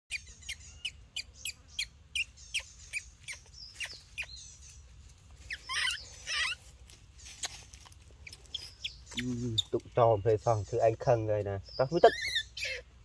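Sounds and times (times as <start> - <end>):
animal chirps: 0.1 - 4.7, 5.5 - 11.0, 11.6 - 12.9
wavering animal squeals: 5.5 - 6.7, 12.0 - 13.0.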